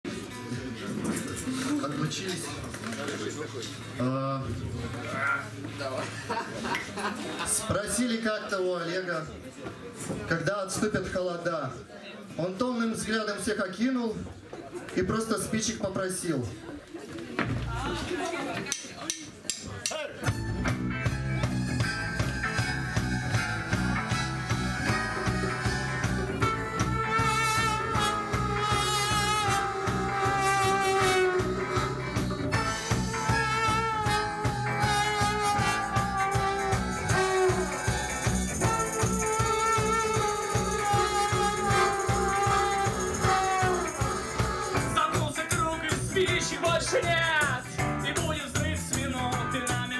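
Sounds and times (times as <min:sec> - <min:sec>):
drum kit: 0:19.6 - 0:49.9
electric guitar: 0:20.3 - 0:49.9
trombone: 0:21.5 - 0:45.2.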